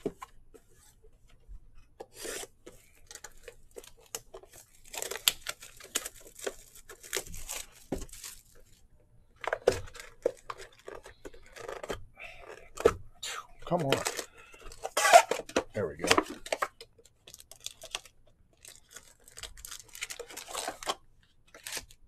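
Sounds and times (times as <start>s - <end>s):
plastic wrap tearing and crinkling: 2.1s - 8.8s, 13.7s - 16.6s, 17.2s - 22.0s.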